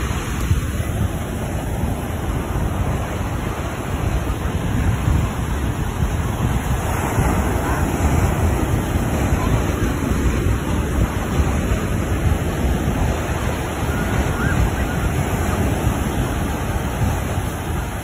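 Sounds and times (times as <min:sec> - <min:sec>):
ocean surf breaking: 0:00.0 - 0:18.0
wind buffeting microphone: 0:00.0 - 0:18.0.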